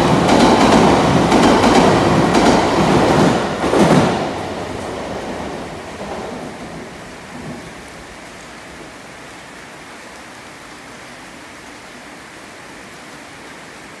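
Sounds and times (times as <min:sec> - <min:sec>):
train rumble: 0:00.0 - 0:09.8
steady rain falling: 0:00.0 - 0:14.0.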